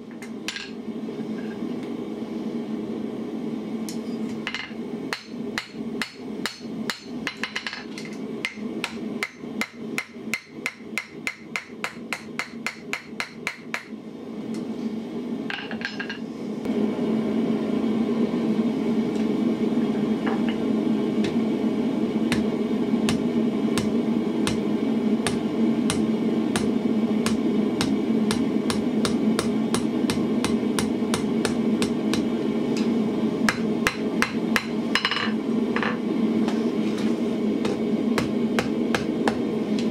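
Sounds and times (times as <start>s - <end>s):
hammer striking iron on anvil: 4.5s - 13.9s, 25.2s - 32.3s, 33.5s - 36.0s.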